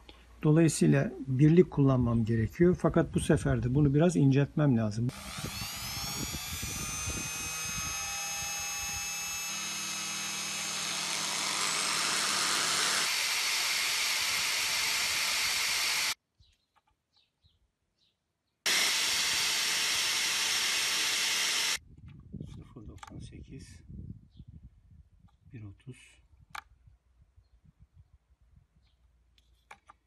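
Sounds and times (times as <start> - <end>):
disc grinding steel: 5.1 - 16.2, 18.7 - 21.8
rotary tool whining: 5.1 - 16.2, 18.7 - 21.8.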